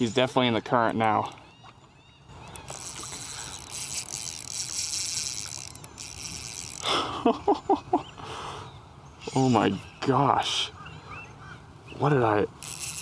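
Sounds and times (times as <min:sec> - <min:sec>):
fishing reel drag ticking: 0:02.4 - 0:07.1, 0:12.6 - 0:13.0.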